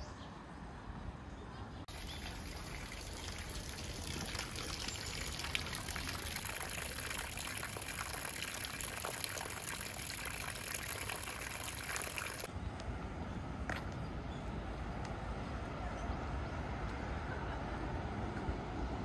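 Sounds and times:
water pouring and splashing into basin: 0:01.9 - 0:12.5.

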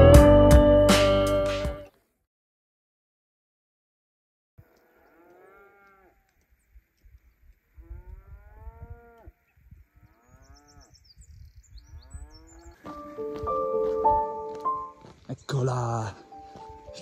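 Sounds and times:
cattle mooing: 0:04.7 - 0:06.3, 0:07.8 - 0:11.0, 0:12.1 - 0:12.8
faint bird chirps: 0:09.4 - 0:12.9.

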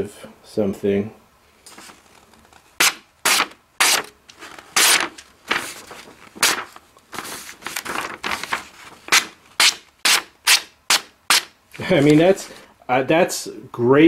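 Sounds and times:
knife slicing paper: 0:02.8 - 0:12.0.

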